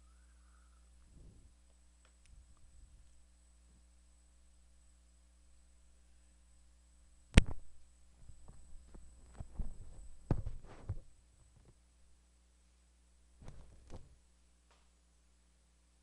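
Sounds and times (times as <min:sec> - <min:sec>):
low electrical hum: 0:00.0 - 0:16.0
soft thumps and rustles: 0:08.2 - 0:11.7.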